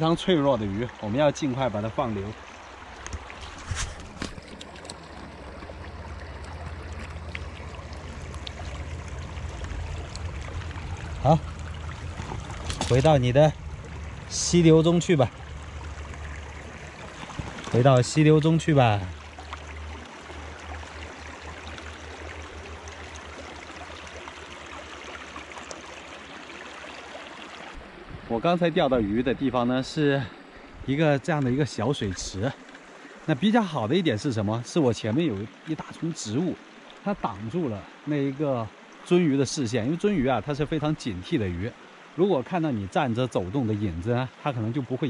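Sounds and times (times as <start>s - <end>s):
stream running over stones: 0.0s - 45.0s.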